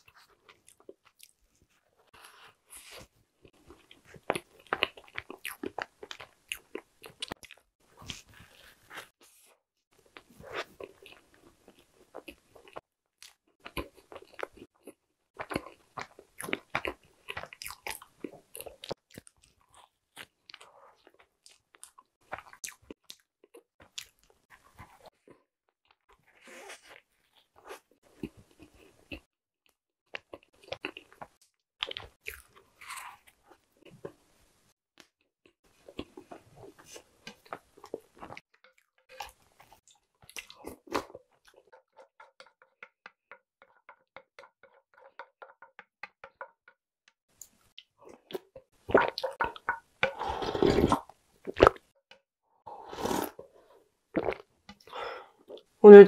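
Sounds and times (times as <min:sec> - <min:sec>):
chewing and wet mouth sounds: 0:00.0 - 0:09.1, 0:10.0 - 0:34.3, 0:35.0 - 0:42.9, 0:47.3 - 0:52.0
slurping and gulping: 0:48.0 - 0:51.9, 0:52.7 - 0:55.7.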